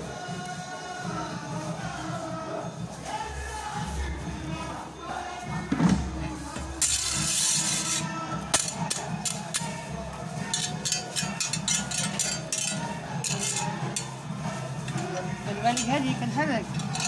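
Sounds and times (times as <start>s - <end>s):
background music: 0.0s - 17.0s
metal peel scraping on pebbles: 6.8s - 9.8s, 10.4s - 17.0s.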